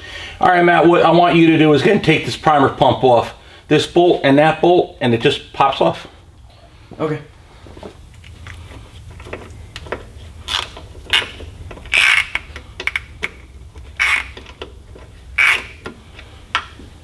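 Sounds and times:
hand ratchet clicking: 10.5s - 16.8s.

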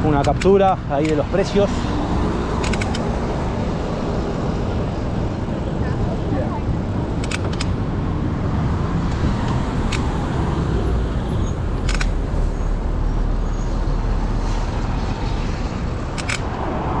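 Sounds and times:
sharp clicks: 0.2s - 1.2s, 2.6s - 3.2s, 7.2s - 7.8s, 11.8s - 12.2s, 16.1s - 16.6s.

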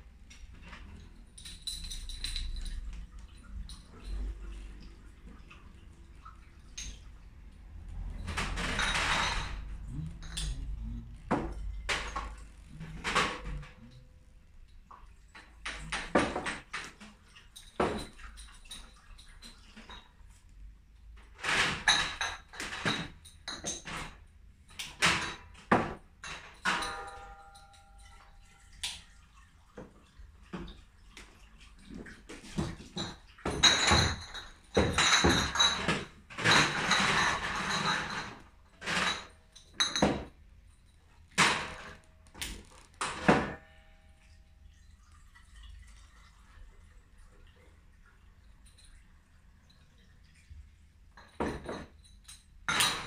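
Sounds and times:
running water: 0.0s - 53.0s
glass bottles clinking: 0.5s - 4.8s, 6.6s - 7.1s, 7.7s - 14.2s, 15.4s - 17.0s, 21.5s - 24.2s, 24.9s - 29.0s, 32.6s - 44.5s, 51.2s - 53.0s.

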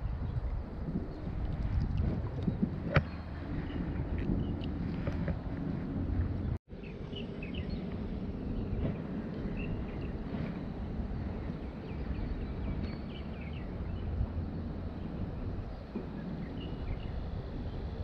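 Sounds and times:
low outdoor rush: 0.0s - 18.0s
bird chirps: 6.7s - 17.9s.

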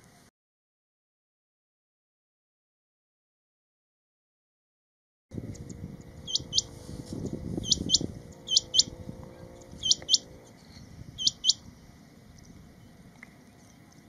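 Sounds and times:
quail calling: 6.2s - 6.8s, 7.6s - 9.0s, 9.7s - 10.3s, 11.2s - 11.6s.

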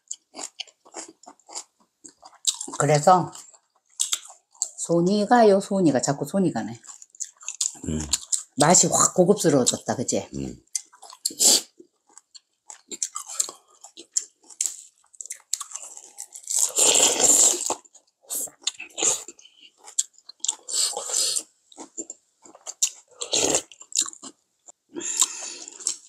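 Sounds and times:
crunchy chewing and biting: 0.0s - 2.8s, 6.8s - 8.5s, 10.7s - 26.0s.

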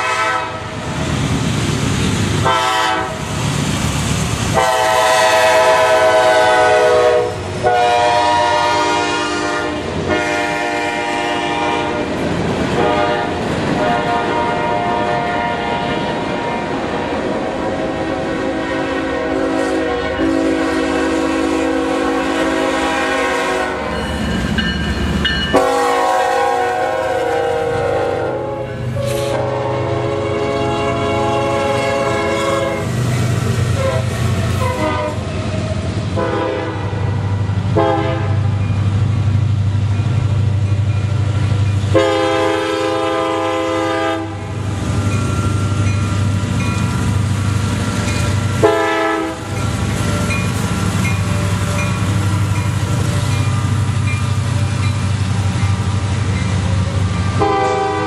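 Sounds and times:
locomotive horn blasts: 0.0s - 0.8s, 2.4s - 3.3s, 4.5s - 16.8s, 17.5s - 24.0s, 25.5s - 32.9s, 33.8s - 35.3s, 36.2s - 38.5s, 41.9s - 44.6s, 48.5s - 50.4s, 57.2s - 58.0s
diesel locomotive engine rumble: 0.0s - 58.0s.

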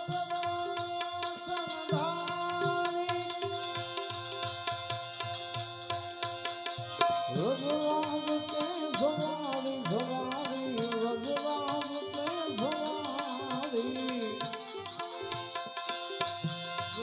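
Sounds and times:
hand drum rhythm: 0.0s - 5.6s
harmonium drone: 0.0s - 17.0s
man singing devotional song: 0.0s - 17.0s.

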